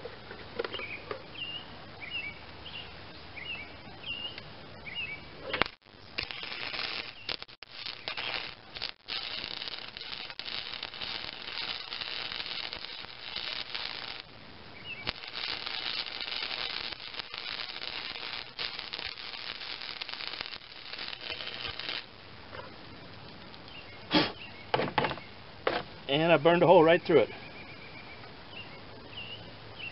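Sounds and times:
welding arc crackling: 0:05.4 - 0:22.6.

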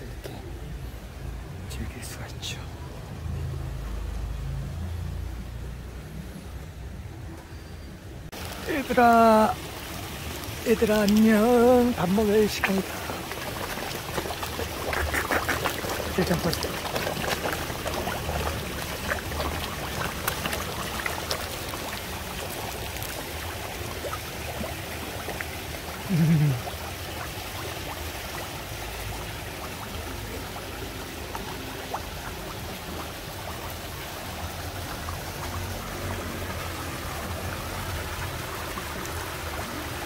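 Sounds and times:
water trickling: 0:08.3 - 0:40.0
fish splashing at surface: 0:09.6 - 0:39.7
low voice-like sound: 0:26.1 - 0:26.7.

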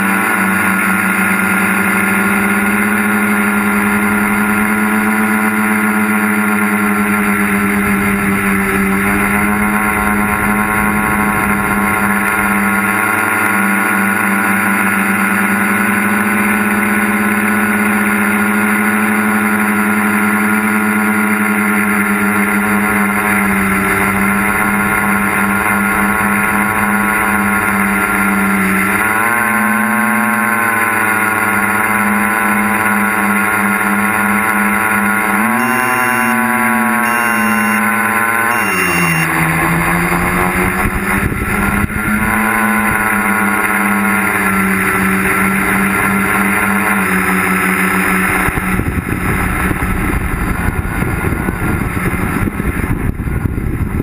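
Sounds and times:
drone motors humming: 0:00.0 - 0:54.0
wind rumble on microphone: 0:40.0 - 0:54.0.

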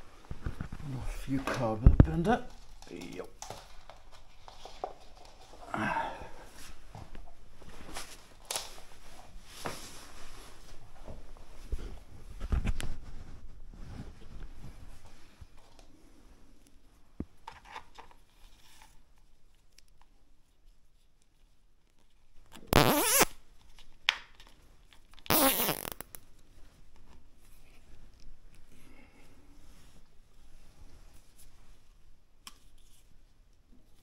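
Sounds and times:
light clicks and handling noise: 0:00.2 - 0:05.6.

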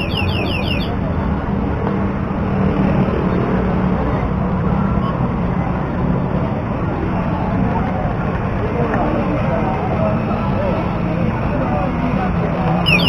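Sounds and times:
high chirps: 0:00.0 - 0:01.0
road traffic rumble: 0:00.0 - 0:13.0.

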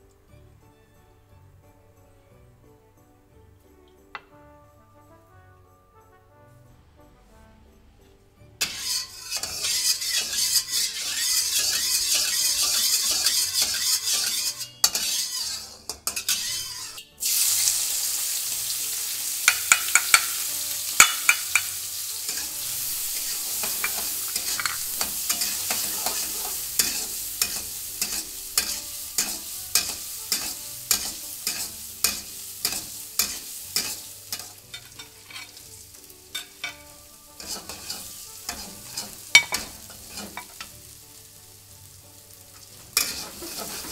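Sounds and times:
burst of sizzling: 0:08.6 - 0:34.6
spatula scraping and clinking wok: 0:08.6 - 0:41.0, 0:42.2 - 0:43.9
garlic sizzling in hot oil: 0:08.6 - 0:43.9.

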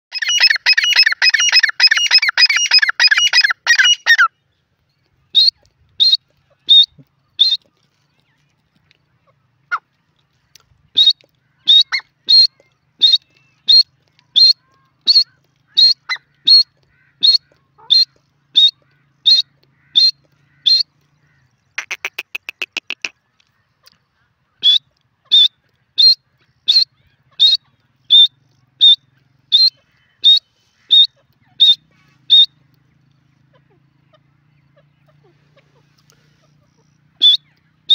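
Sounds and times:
bird harsh chatter: 0:00.1 - 0:04.3, 0:11.0 - 0:23.9, 0:24.6 - 0:32.6.

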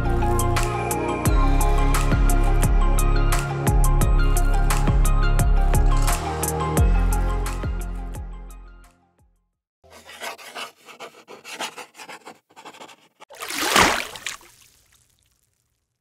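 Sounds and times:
pencil scratching on paper: 0:09.9 - 0:13.3.

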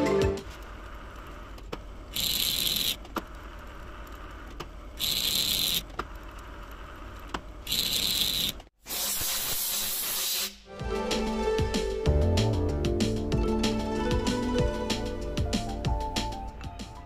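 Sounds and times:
lathe cutting hiss: 0:07.8 - 0:10.7.

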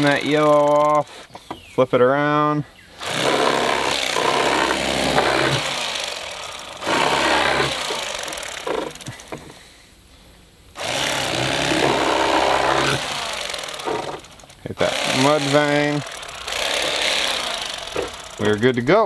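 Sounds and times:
electric fillet knife running: 0:10.8 - 0:18.8.

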